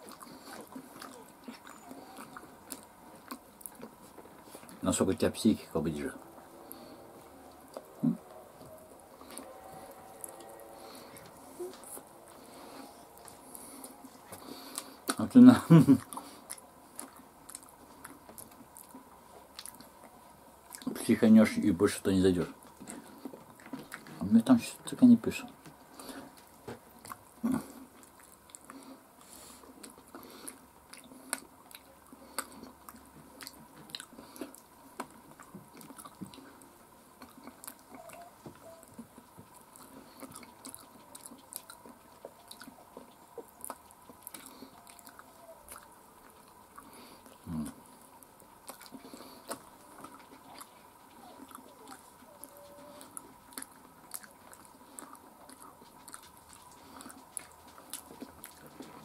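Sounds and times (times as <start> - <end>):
chewing fried chicken: 0.0 - 59.0.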